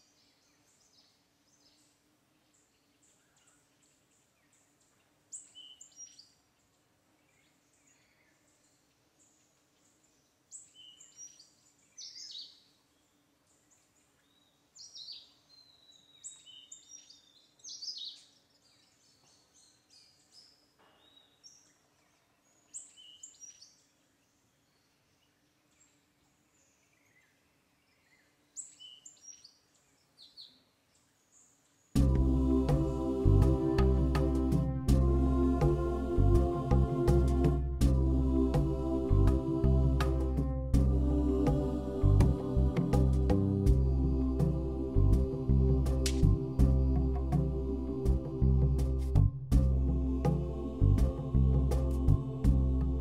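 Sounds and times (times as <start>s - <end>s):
faint steady hum: 32.0s - 53.0s.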